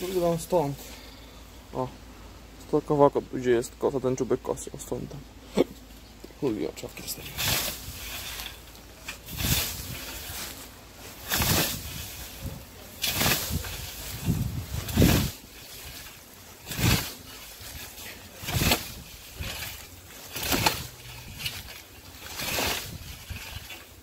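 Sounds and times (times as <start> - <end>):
scythe swishing through grass: 7.2 - 24.0.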